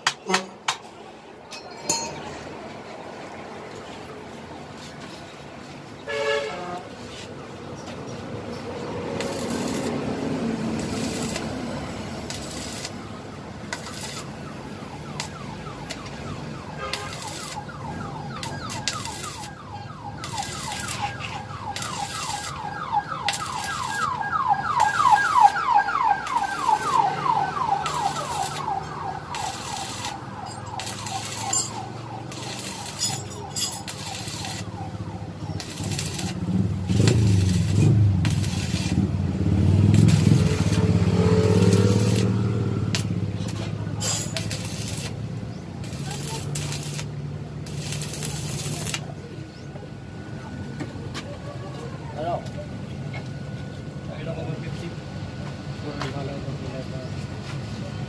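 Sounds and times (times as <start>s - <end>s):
welding arc crackling and sizzling: 8.6s - 49.3s
rising siren tone: 12.5s - 43.0s.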